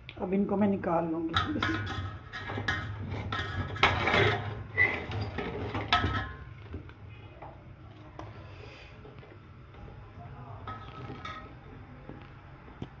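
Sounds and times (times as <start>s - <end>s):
strainer clinking against metal pot: 1.3s - 6.4s.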